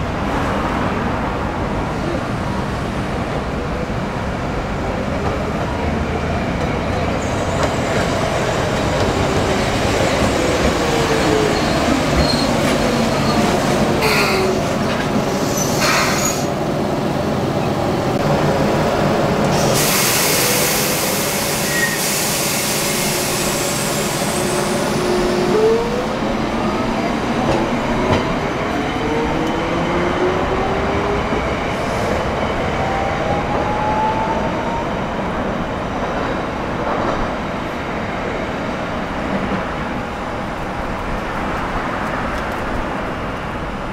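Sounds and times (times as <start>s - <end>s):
air brake hiss: 15.4s - 16.5s, 19.5s - 24.8s.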